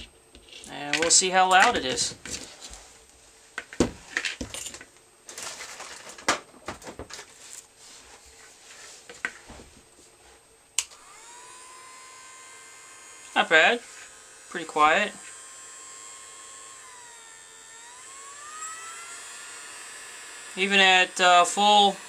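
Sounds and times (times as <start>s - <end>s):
hot air gun fan whine: 10.8s - 22.0s.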